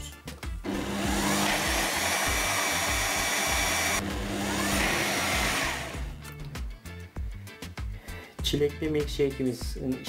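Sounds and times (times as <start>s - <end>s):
blender motor whirring: 0.6s - 6.2s.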